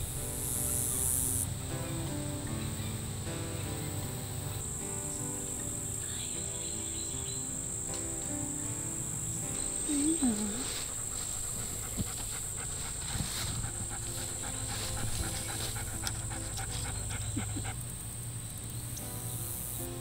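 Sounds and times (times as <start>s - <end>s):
dog panting: 9.9s - 18.2s.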